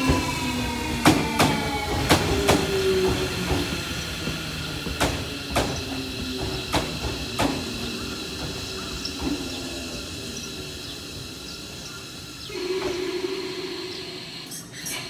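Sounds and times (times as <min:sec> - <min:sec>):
train wheels clacking over rail joints: 0:00.0 - 0:10.1.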